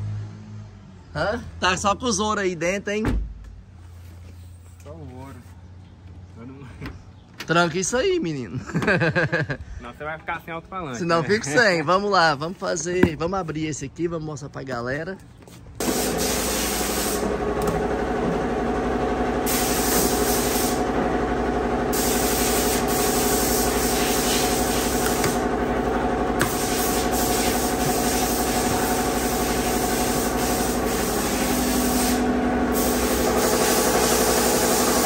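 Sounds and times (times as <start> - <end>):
machinery hiss and hum: 15.8 - 17.3, 19.4 - 20.9, 21.9 - 25.6, 26.4 - 35.0.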